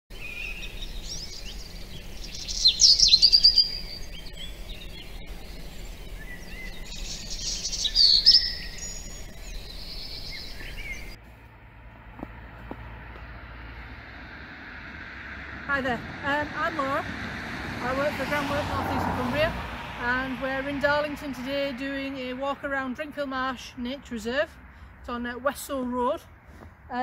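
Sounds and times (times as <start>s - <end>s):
high bird chirps: 0.1s - 11.2s
songbirds trilling: 0.1s - 11.2s.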